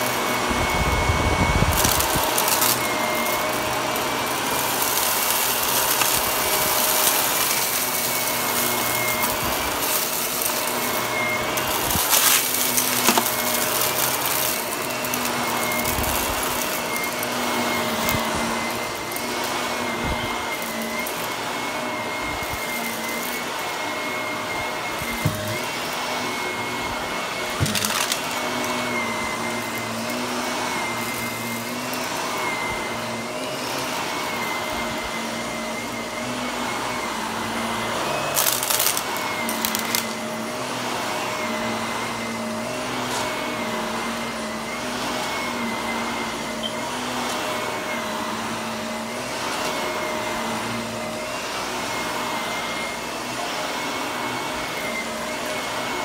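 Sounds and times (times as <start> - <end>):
vacuum cleaner running on carpet: 0.0 - 56.0.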